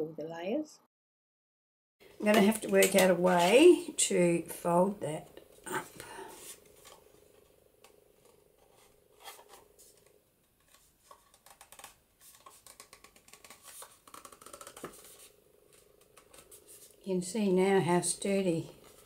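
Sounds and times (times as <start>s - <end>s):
card cover crackling: 8.3s - 17.0s.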